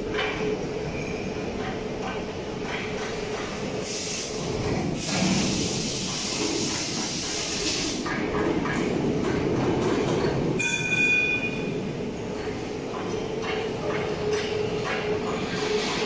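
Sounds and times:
hiss: 3.4s - 8.2s.

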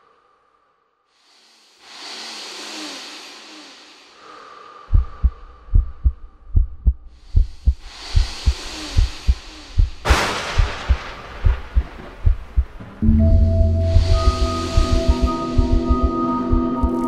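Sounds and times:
rushing whoosh: 7.2s - 16.1s.

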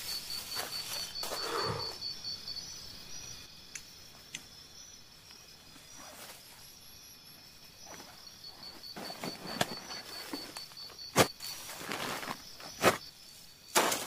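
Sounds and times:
insect chirping: 0.0s - 14.0s
backpack rustling in dry grass: 0.1s - 1.6s, 7.8s - 14.0s.

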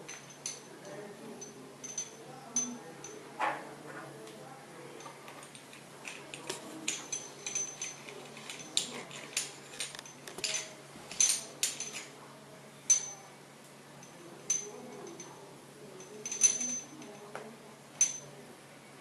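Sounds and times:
metallic clicks and clinks: 0.0s - 3.2s, 5.0s - 12.2s, 12.9s - 13.3s, 14.0s - 15.4s, 16.0s - 18.3s.

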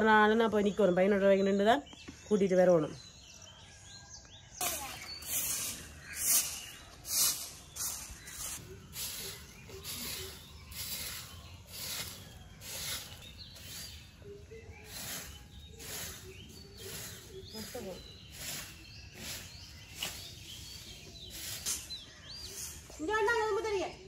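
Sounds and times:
broom sweeping gritty ground: 4.6s - 23.0s.

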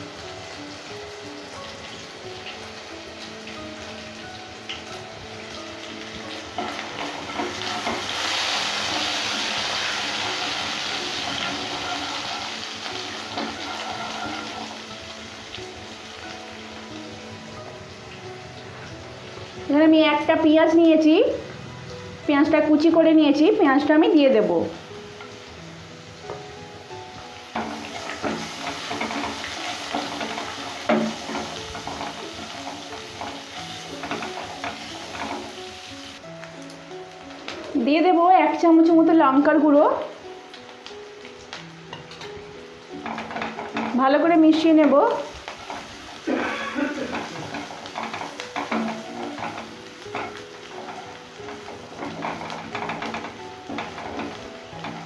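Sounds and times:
spice paste sizzling in oil: 0.0s - 55.0s
spatula knocking on pan: 27.6s - 35.6s, 43.0s - 44.0s, 47.1s - 55.0s.

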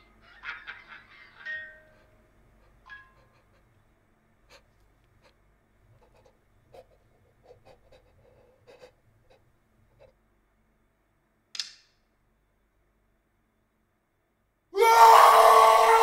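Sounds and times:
faint breathing: 4.4s - 10.2s.

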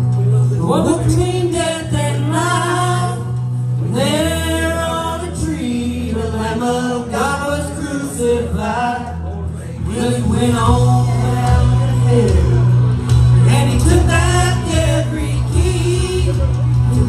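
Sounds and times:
instrumental accompaniment: 0.0s - 17.0s
woman and man singing gospel: 0.5s - 17.0s.

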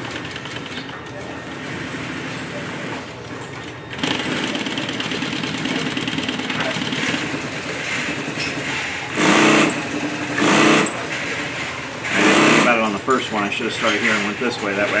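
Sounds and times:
sewing machine stitching: 7.9s - 11.4s, 12.0s - 13.0s.

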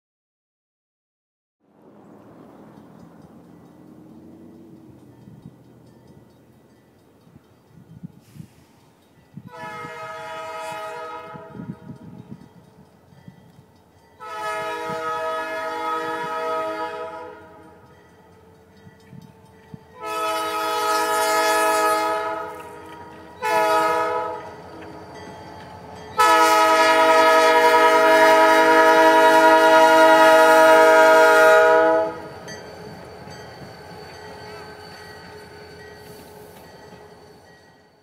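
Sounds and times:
locomotive engine and wheels rumbling: 1.6s - 38.0s
locomotive air horn blasts: 9.4s - 12.0s, 14.2s - 17.8s, 20.0s - 24.8s, 26.2s - 32.3s.

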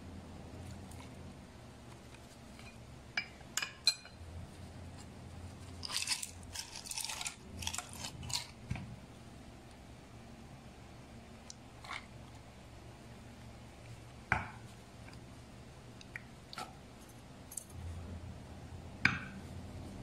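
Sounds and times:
crushed ice clattering into glass jug: 5.8s - 8.6s.

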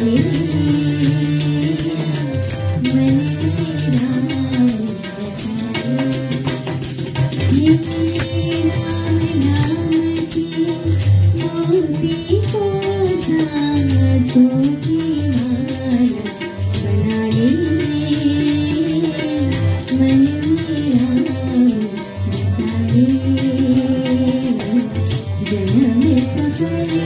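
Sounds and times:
jingling rattle percussion: 0.0s - 27.0s.

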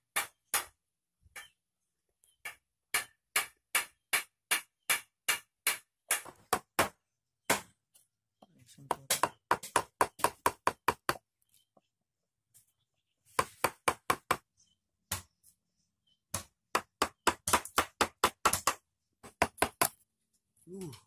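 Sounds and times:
chisel struck into wood: 2.4s - 7.7s, 8.9s - 11.2s, 16.3s - 20.0s.

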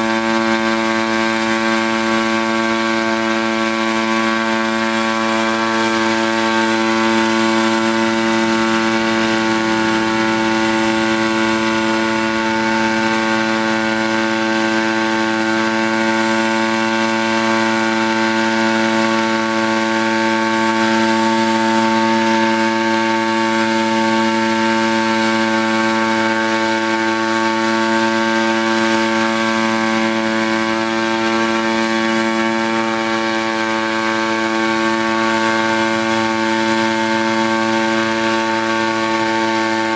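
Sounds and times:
drone engine and propeller hum: 0.0s - 39.9s.

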